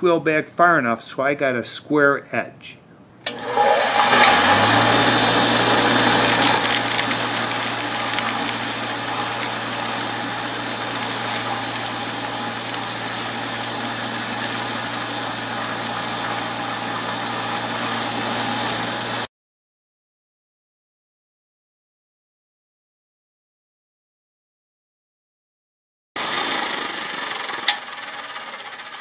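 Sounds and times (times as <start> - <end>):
bench grinder motor hum: 3.3 - 19.3, 26.2 - 29.0
high thin whine: 3.3 - 19.3, 26.2 - 29.0
diamond dresser hissing on wheel: 4.2 - 19.3.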